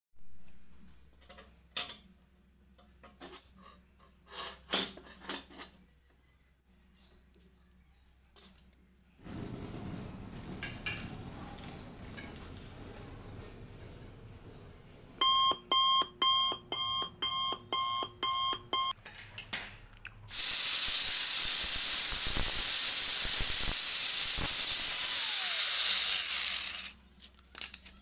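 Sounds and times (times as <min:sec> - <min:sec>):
angle grinder grinding steel: 0:20.3 - 0:27.0.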